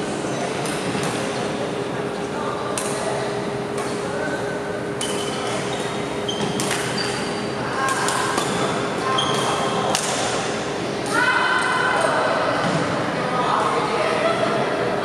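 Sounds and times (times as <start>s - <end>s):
racket striking shuttlecock: 6.4s - 7.0s.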